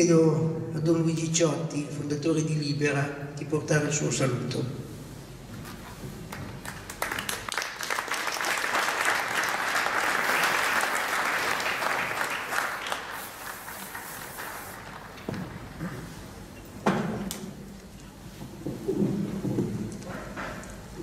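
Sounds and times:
audience applauding: 6.3s - 15.3s.

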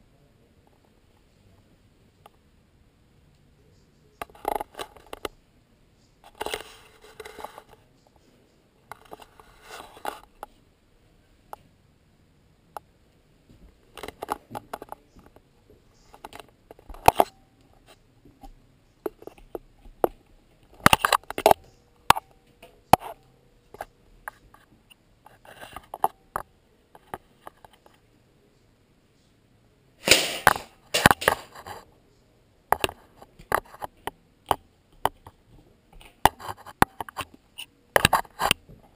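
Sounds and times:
plastic darts clicking and rattling: 30.0s - 31.5s.

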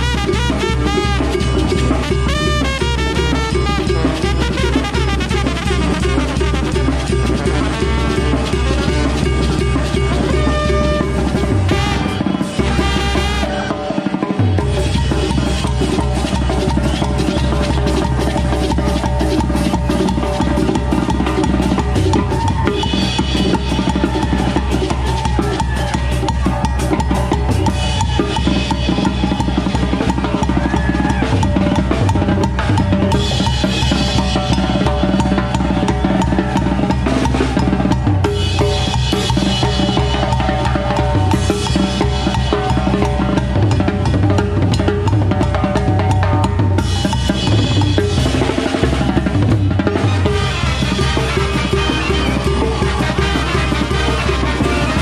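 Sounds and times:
trombones and trumpets playing: 0.0s - 14.2s, 49.9s - 55.0s
drums keeping a driving beat: 0.0s - 55.0s.

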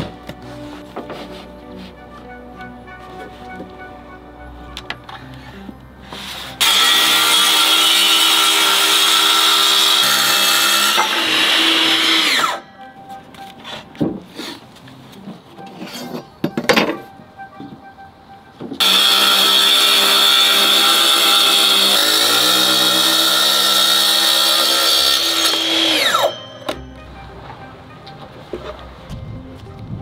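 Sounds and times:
knocks and handling sounds: 0.0s - 3.9s, 4.6s - 6.4s, 12.8s - 18.8s, 26.6s - 29.8s
power tool whining: 5.1s - 12.7s, 18.8s - 26.9s.

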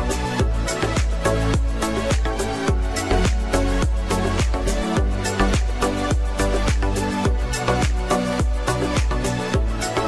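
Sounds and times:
dance music with kick drum: 0.0s - 10.0s.

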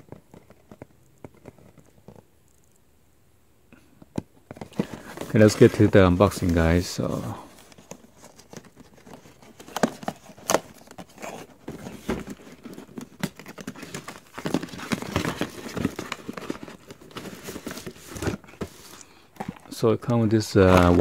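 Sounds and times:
cardboard rustling: 0.0s - 2.6s, 4.0s - 21.0s.

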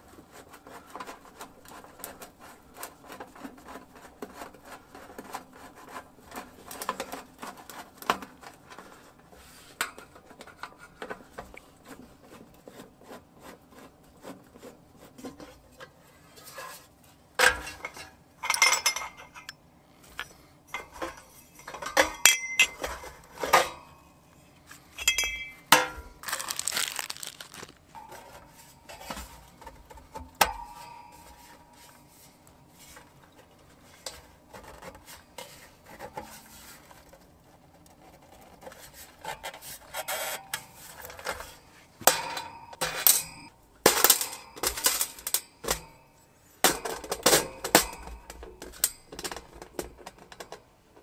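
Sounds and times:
metal pipes clanking: 17.4s - 19.6s, 20.7s - 23.9s, 24.9s - 31.9s, 42.0s - 50.6s.

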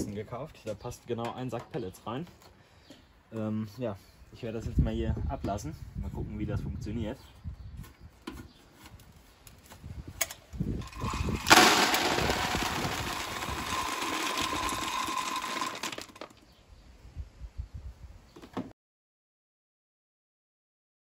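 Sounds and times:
wood pellets pouring into plastic box: 10.8s - 16.3s.

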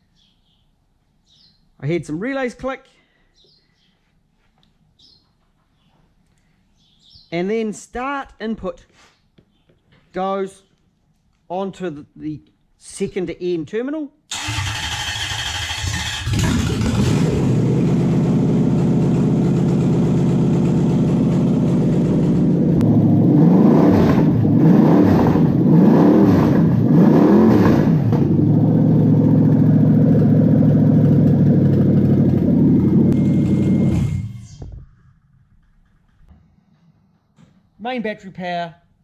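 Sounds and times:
engine revving: 14.3s - 34.5s
engine idling: 14.4s - 23.2s, 28.2s - 36.3s.

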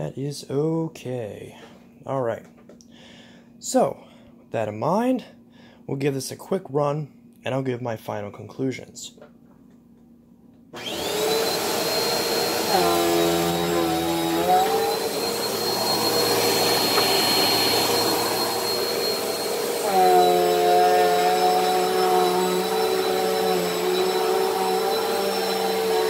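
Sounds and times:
vacuum cleaner motor whine: 10.8s - 26.0s.

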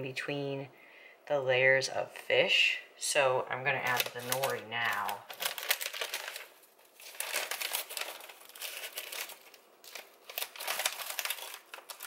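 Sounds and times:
packet crinkling and rustling: 3.8s - 12.0s.

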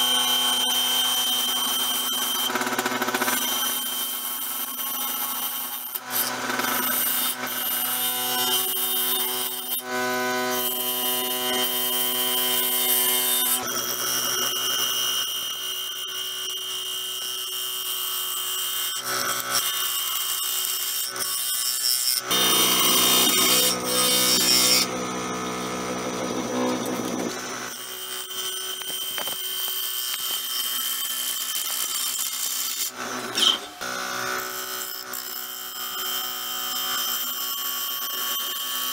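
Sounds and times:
lathe motor whine: 22.3s - 29.5s.

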